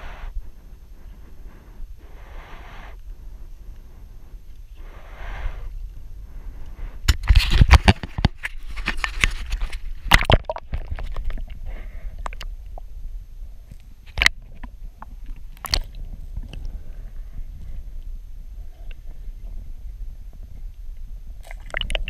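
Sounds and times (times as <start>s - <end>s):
soft breathy rushes of noise: 0.0s - 7.7s, 11.1s - 12.6s, 16.0s - 21.4s.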